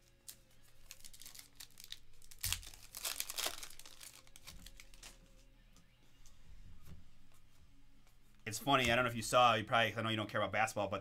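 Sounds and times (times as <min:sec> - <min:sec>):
card pack wrapper torn and crinkled: 0:00.0 - 0:05.2.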